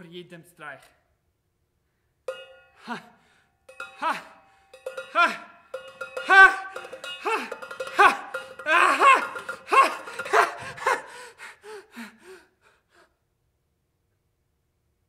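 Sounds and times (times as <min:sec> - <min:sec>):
metallic ring: 0:02.3 - 0:11.1.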